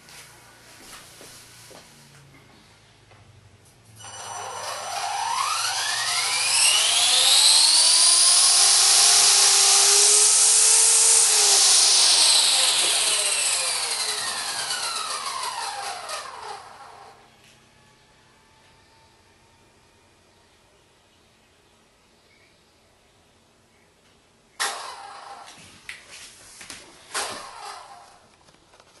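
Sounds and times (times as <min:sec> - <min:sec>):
rc helicopter motor whine: 0:04.0 - 0:17.3, 0:24.6 - 0:25.6, 0:27.1 - 0:28.2.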